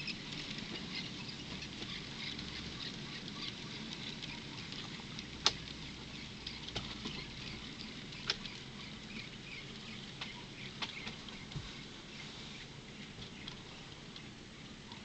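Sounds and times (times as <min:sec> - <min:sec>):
sharp clicks of track: 0:00.1 - 0:08.7.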